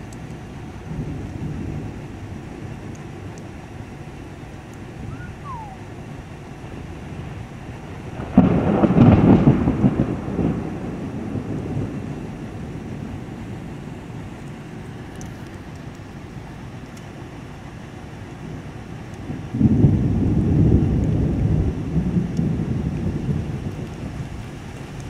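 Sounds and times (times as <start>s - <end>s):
low background rumble: 0.0s - 25.0s
loud rolling thunderclap: 0.8s - 2.9s, 6.7s - 14.3s, 19.3s - 25.0s.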